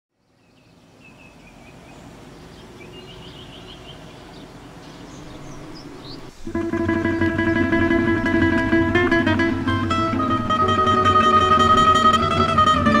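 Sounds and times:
small birds chirping: 0.1 - 7.7.

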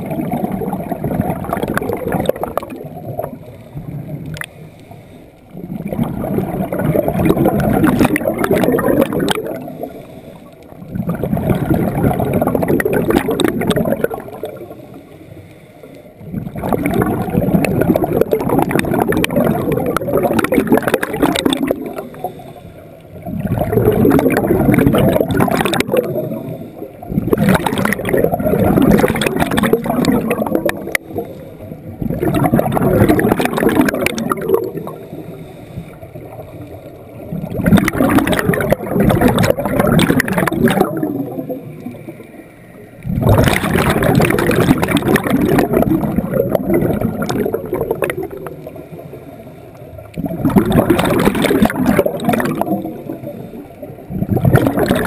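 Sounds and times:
underwater bubbles gurgling: 0.0 - 55.0.

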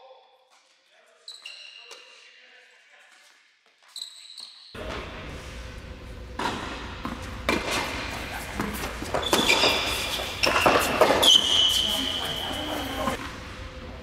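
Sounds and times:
shoe squeaks on court: 1.2 - 2.2, 3.8 - 4.8, 8.7 - 13.2
racquet hitting ball: 6.2 - 13.5
ball bouncing: 6.3 - 13.4.

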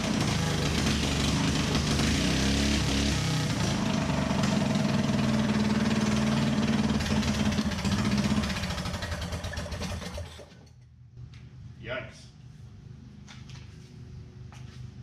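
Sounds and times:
small gasoline engine running: 0.0 - 10.7.

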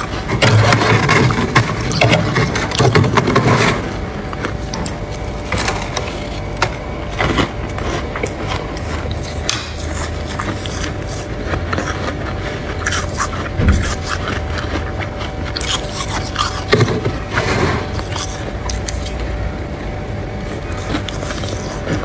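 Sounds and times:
spoon scraping frost: 4.6 - 19.2, 20.5 - 22.0.

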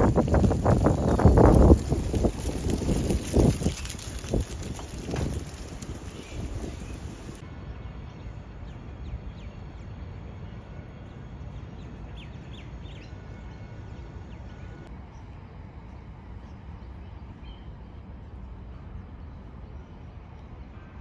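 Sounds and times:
low outdoor rumble: 0.0 - 21.0
bird calls: 3.6 - 7.4.

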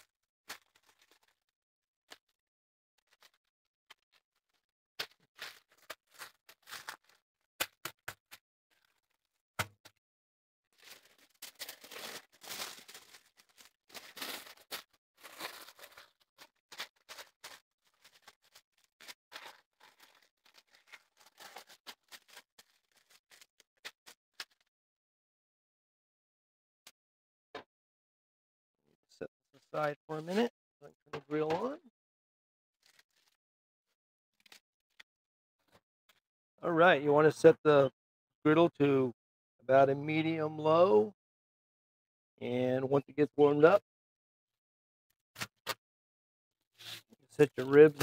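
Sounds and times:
aluminium foil crinkling: 3.0 - 7.2, 10.7 - 24.6.

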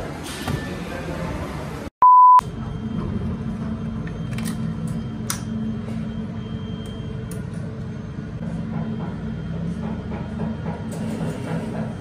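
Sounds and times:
test tone beep: 2.0 - 2.5
low machine hum: 2.4 - 12.0.

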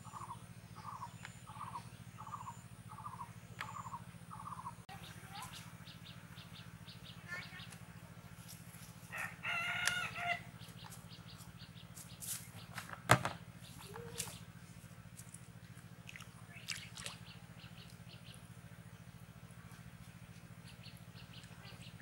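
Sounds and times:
small birds chirping: 0.0 - 9.0, 9.9 - 22.0
steady low hum: 0.0 - 22.0
rooster crowing: 9.1 - 10.5
plastic bucket set down: 12.9 - 13.4.

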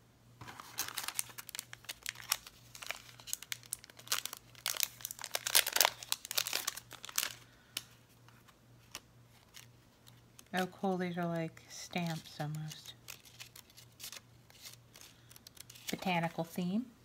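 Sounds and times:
packaging crinkling and rustling: 0.4 - 10.9, 11.8 - 16.3.

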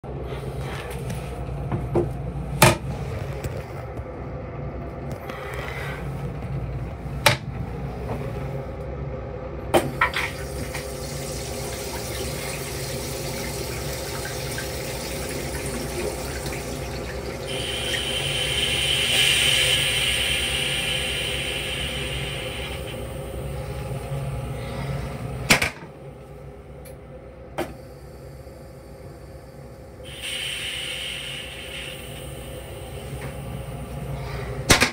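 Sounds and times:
toilet flushing: 9.8 - 26.1, 27.4 - 34.9.

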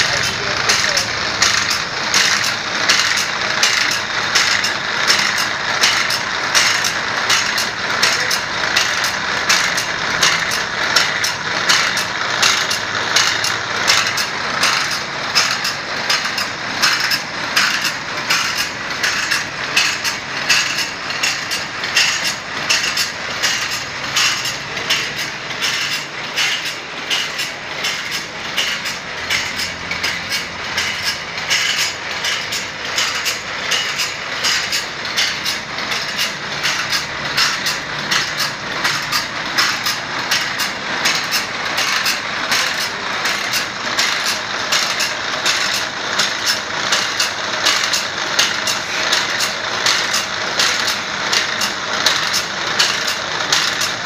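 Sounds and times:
mechanical feed clatter: 0.0 - 54.0
rhythmic grinding wheel: 0.0 - 54.0.

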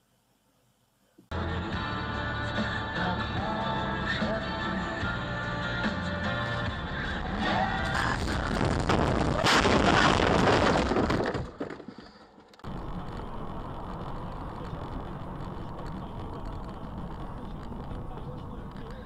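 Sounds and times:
car engine and road noise: 1.3 - 9.4, 12.4 - 19.0
car crashing: 7.4 - 18.3.

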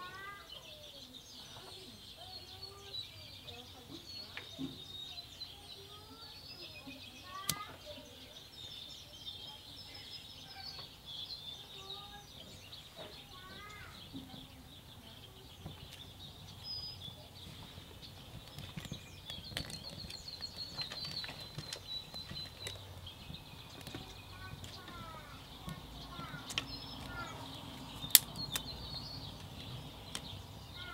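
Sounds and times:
birds chirping: 0.0 - 30.9.

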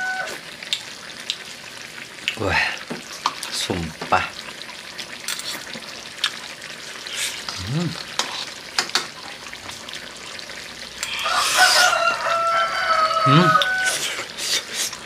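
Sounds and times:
person humming: 7.5 - 8.1, 13.2 - 14.2.

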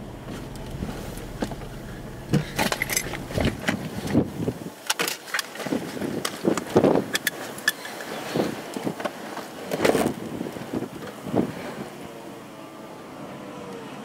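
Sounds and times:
low steady hum: 0.0 - 4.7
wind buffeting microphone: 0.1 - 4.8, 5.6 - 12.1.

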